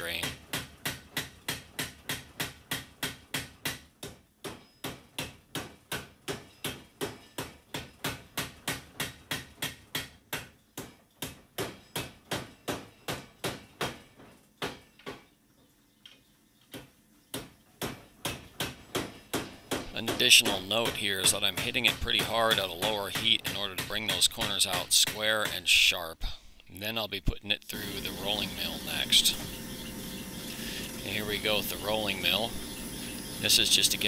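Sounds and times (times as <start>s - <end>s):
power hammer striking hot steel: 27.8s - 34.0s.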